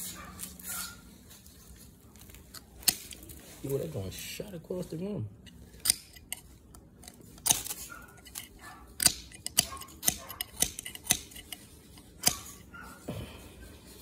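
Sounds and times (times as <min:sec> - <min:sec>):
ferro rod metallic scrapes: 0:05.5 - 0:13.1.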